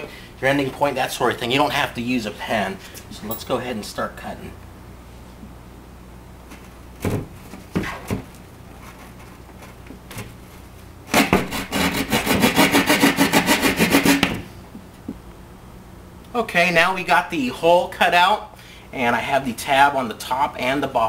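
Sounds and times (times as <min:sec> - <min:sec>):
hand saw cutting drywall: 0:11.1 - 0:14.4.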